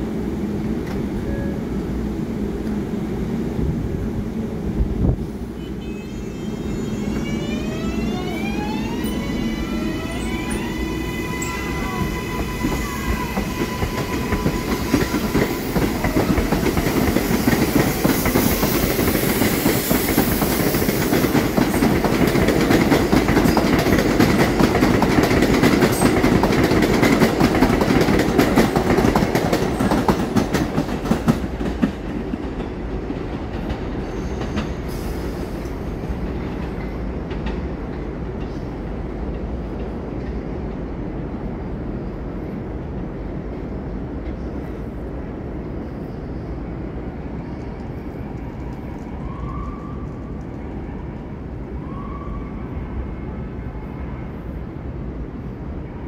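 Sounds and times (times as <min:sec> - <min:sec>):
train wheels clattering on rails: 0:09.8 - 0:40.9.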